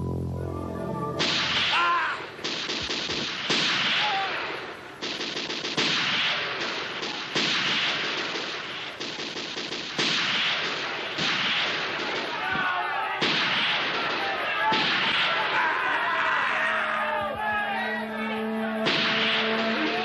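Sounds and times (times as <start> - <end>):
automatic gunfire: 1.2 - 15.5, 18.8 - 20.0.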